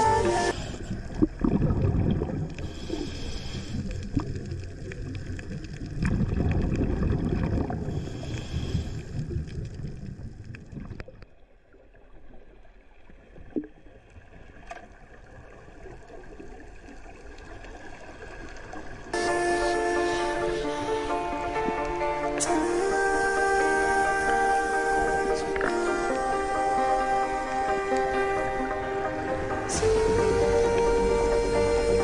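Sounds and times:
underwater hiss: 0:00.0 - 0:01.4, 0:02.5 - 0:04.9, 0:07.6 - 0:09.7, 0:19.2 - 0:32.0
underwater regulator bubbles: 0:00.0 - 0:11.4.

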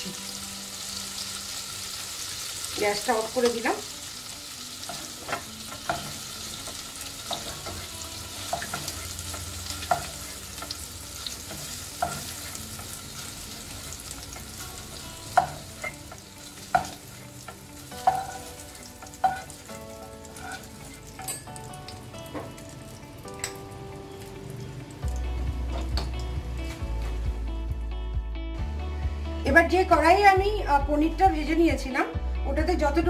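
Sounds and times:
butter and oil sizzling in pan: 0:00.0 - 0:26.7
spatula scraping and tapping pan: 0:04.9 - 0:10.8, 0:11.4 - 0:13.0, 0:15.4 - 0:19.6, 0:20.3 - 0:21.4.

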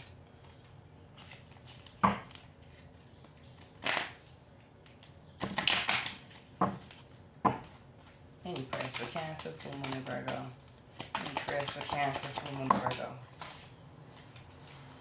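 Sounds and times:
cards rustling when shuffled: 0:00.4 - 0:14.9
sharp card taps: 0:08.5 - 0:13.0.

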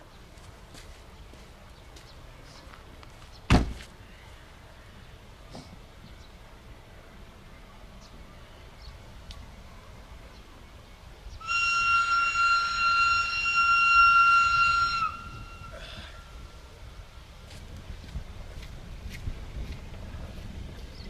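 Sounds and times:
locomotive whistle blast: 0:11.4 - 0:16.4.

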